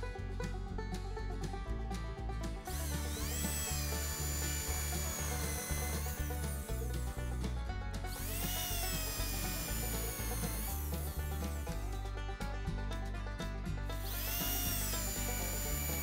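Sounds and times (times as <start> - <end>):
background music with steady beat: 0.0 - 16.0
electric drill boring into wood: 2.7 - 7.2, 8.1 - 11.7, 14.0 - 16.0.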